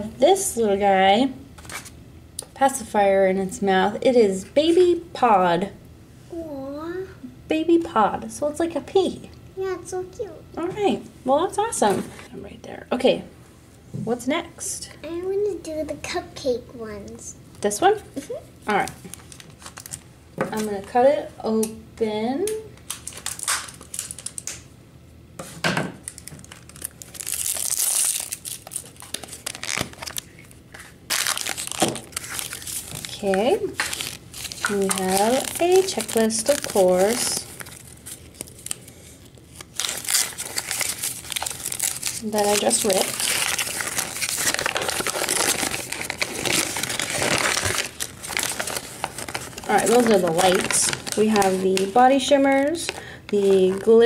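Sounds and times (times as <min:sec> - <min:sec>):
plastic packaging crinkling: 0:18.7 - 0:20.7, 0:22.8 - 0:24.6, 0:26.0 - 0:54.0.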